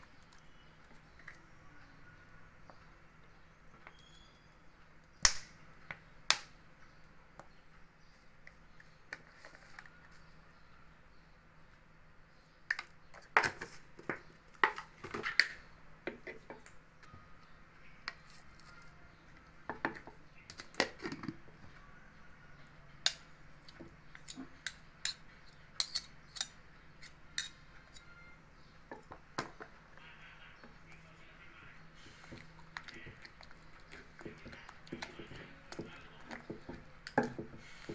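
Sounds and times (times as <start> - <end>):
metal spoons scraping wooden mortar: 24.2 - 28.2.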